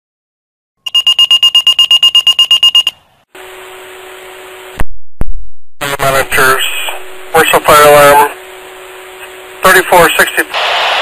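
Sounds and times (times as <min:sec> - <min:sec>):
pager rapid high beeps: 0:00.8 - 0:03.0
radio hiss and low hum: 0:03.4 - 0:11.0.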